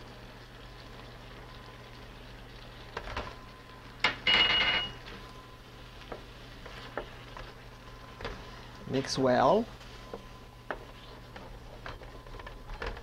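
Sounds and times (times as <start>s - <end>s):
glass bowl clinking on metal pan: 4.1s - 5.0s.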